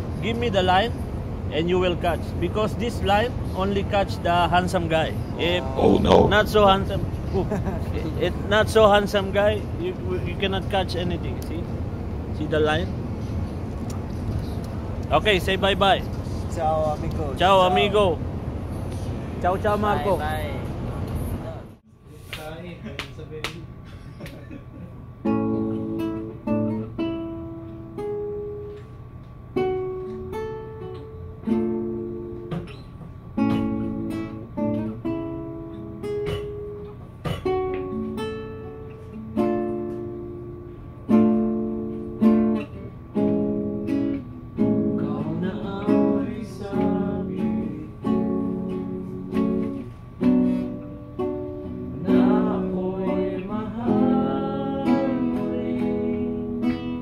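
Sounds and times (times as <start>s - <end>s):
acoustic guitar strumming: 25.2s - 28.9s, 29.5s - 57.0s.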